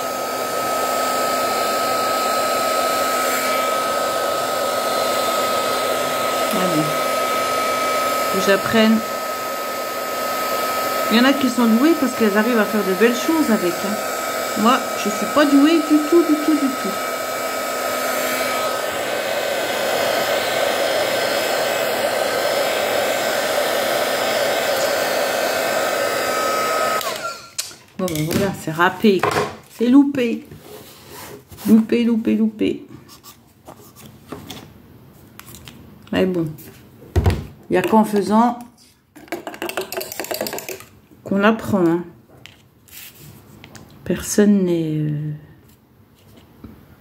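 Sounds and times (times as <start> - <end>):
heat gun air rushing: 0.0 - 27.6
heat gun high whine: 0.0 - 27.7.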